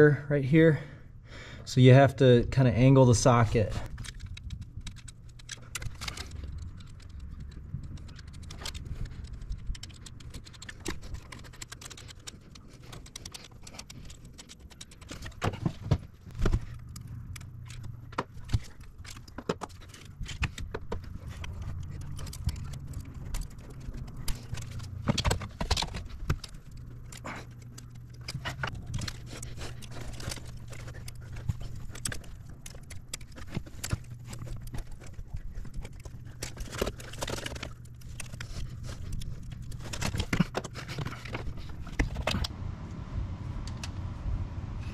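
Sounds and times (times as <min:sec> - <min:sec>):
steady low hum: 0:00.0 - 0:44.9.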